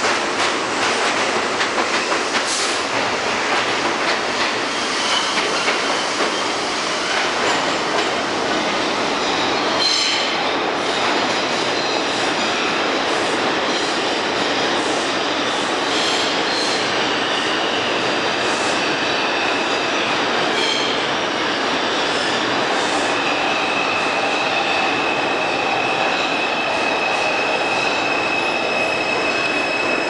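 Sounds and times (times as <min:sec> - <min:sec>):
subway train wheels on rail: 0:00.0 - 0:30.0.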